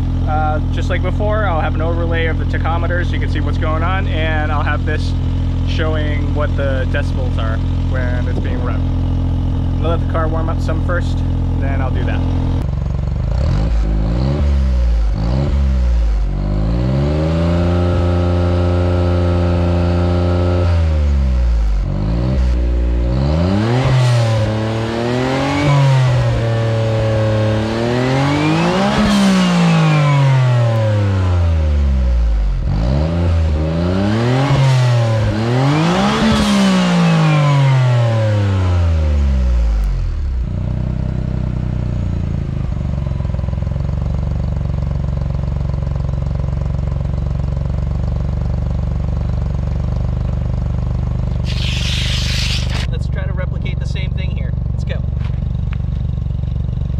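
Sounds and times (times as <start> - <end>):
car engine revving: 0.0 - 40.4, 51.3 - 53.8.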